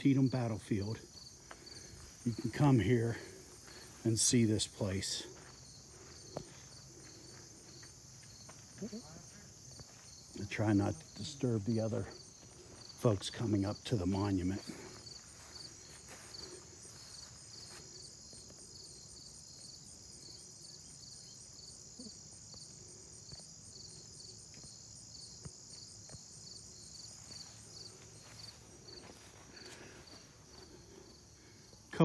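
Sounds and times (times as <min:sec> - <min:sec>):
insects trilling: 0:00.0 - 0:32.0
pulsing insect chirp: 0:00.0 - 0:32.0.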